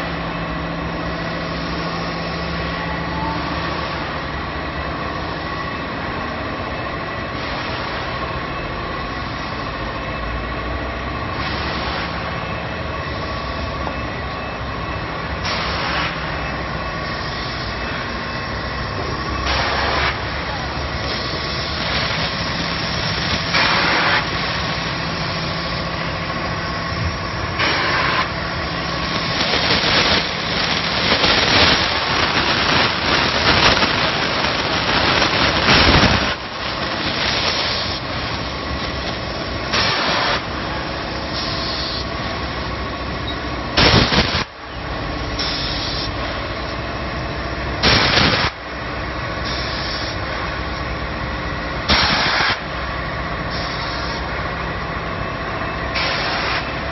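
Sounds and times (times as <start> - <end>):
production line machinery running: 0.0 - 56.9
bursts of hissing: 51.9 - 52.6.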